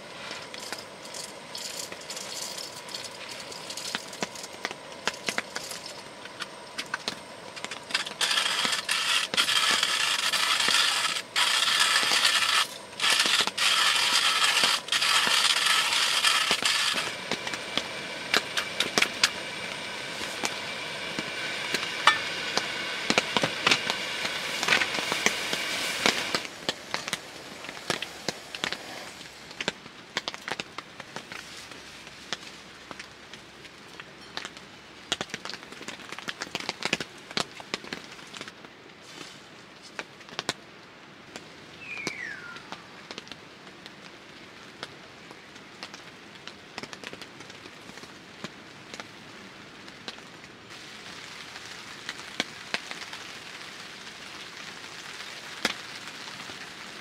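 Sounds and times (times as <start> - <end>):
rain pattering on tent fabric: 0.0 - 57.0
coffee grinder crushing beans: 7.8 - 19.4.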